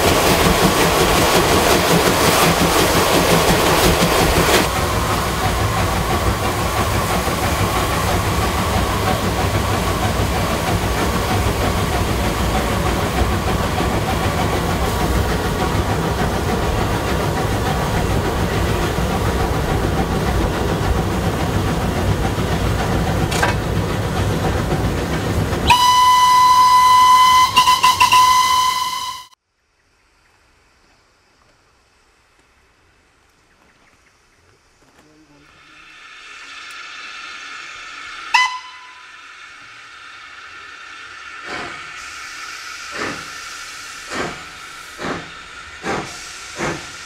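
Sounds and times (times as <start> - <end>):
steam locomotive running: 0.0 - 29.4, 32.3 - 47.0
steam whistle blast: 25.6 - 29.4, 38.3 - 39.4.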